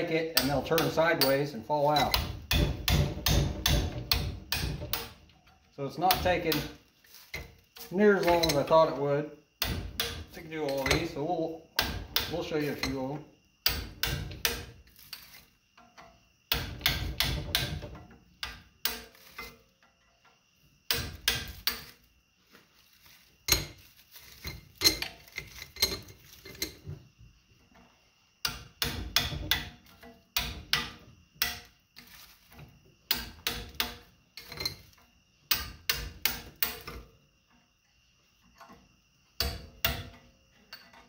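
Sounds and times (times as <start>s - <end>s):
hammer striking metal chisel: 0.3s - 5.3s, 6.1s - 6.8s, 9.6s - 11.2s, 11.8s - 13.0s, 13.6s - 14.7s, 16.5s - 19.5s, 20.9s - 21.9s, 28.4s - 29.8s, 30.4s - 31.7s, 33.1s - 34.7s, 35.5s - 37.0s, 39.4s - 40.2s.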